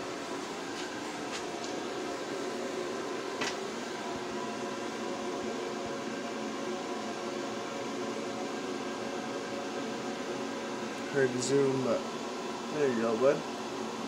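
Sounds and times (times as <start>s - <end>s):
fan heater humming: 0.0s - 14.0s.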